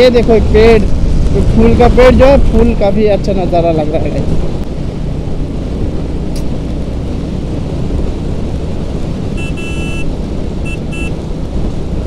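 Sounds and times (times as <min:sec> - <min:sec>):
motorcycle running: 0:00.0 - 0:12.0
wind buffeting microphone: 0:00.0 - 0:12.0
vehicle horn: 0:09.4 - 0:11.1.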